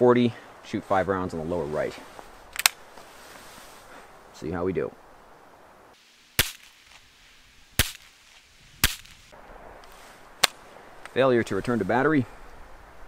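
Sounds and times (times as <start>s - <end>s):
pistol shots: 7.8s - 8.1s.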